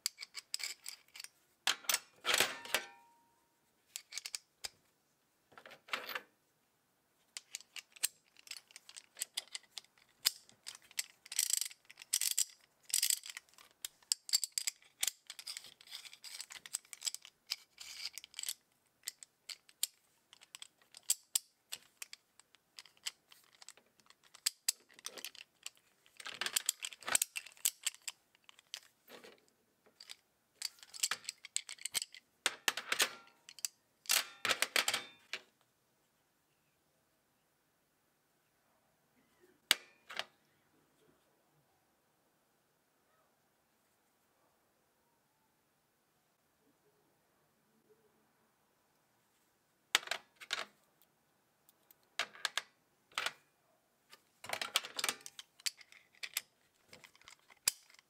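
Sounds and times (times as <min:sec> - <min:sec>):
metal sockets clinking: 0:00.0 - 0:03.1, 0:04.0 - 0:04.4, 0:07.4 - 0:29.4, 0:30.0 - 0:35.4, 0:54.4 - 0:58.0.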